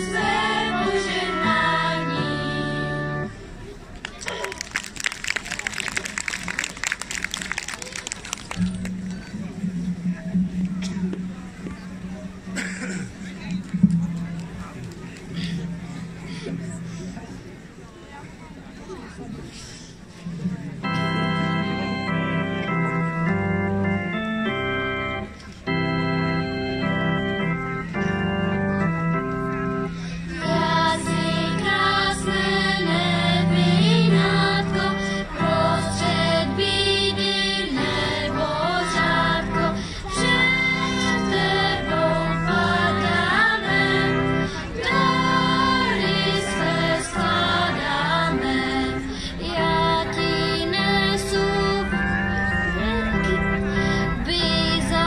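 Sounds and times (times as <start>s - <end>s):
children's choir singing: 0.0s - 3.3s, 30.1s - 55.0s
held accompaniment chords: 0.0s - 3.9s, 6.0s - 19.4s, 20.0s - 55.0s.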